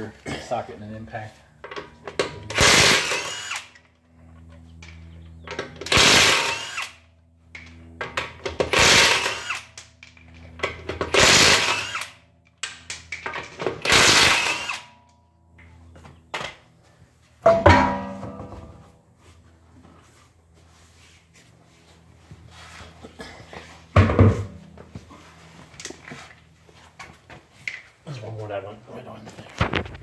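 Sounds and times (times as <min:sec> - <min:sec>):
impact wrench hammering: 0:17.4 - 0:18.7.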